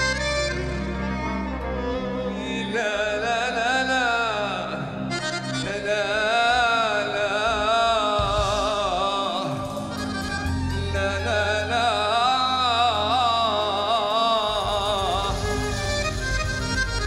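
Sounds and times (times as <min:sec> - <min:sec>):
ornamented lead melody: 0:00.0 - 0:17.0
deep bass line: 0:08.2 - 0:11.9, 0:14.5 - 0:17.0.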